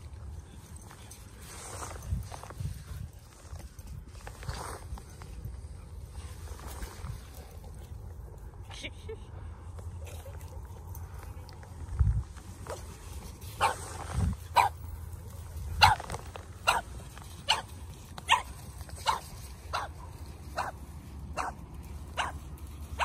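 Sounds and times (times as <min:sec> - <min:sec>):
dog barking: 0:13.6 - 0:13.8, 0:14.6 - 0:14.8, 0:15.8 - 0:16.1, 0:18.3 - 0:20.0, 0:20.6 - 0:20.8, 0:21.4 - 0:21.6, 0:22.2 - 0:22.4.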